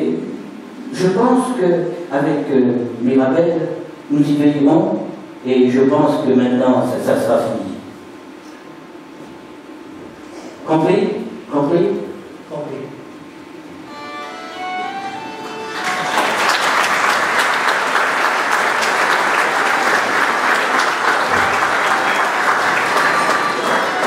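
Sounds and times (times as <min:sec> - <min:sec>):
folk band melody: 0:13.8 - 0:17.2
audience applause: 0:15.2 - 0:24.0.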